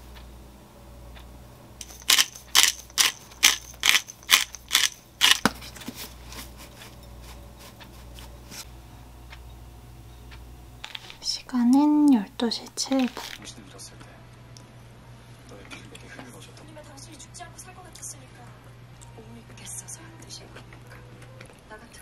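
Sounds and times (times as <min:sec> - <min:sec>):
spice dispenser rasping: 0:01.8 - 0:05.7.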